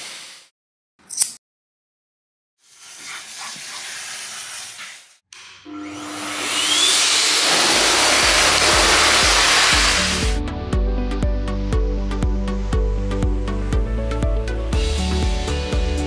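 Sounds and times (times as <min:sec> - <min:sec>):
blow dryer rushing air: 0:05.7 - 0:10.4, 0:14.8 - 0:16.0
music with steady beat: 0:08.3 - 0:16.0.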